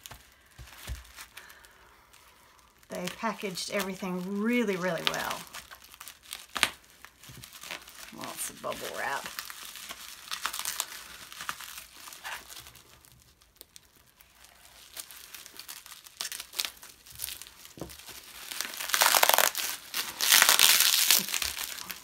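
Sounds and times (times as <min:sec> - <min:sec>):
bubble wrap crinkling: 0:00.0 - 0:22.0.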